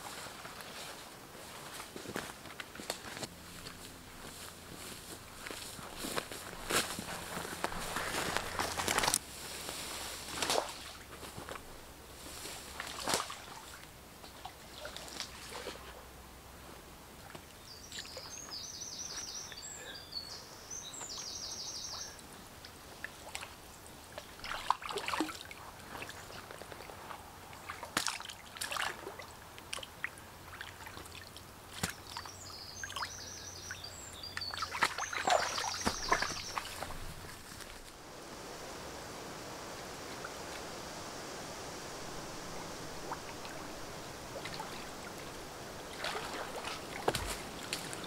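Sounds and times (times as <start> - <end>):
water splashing and sloshing: 12.2 - 16.0, 23.0 - 32.2, 34.4 - 38.0, 42.5 - 48.0
songbird trilling: 32.0 - 37.3.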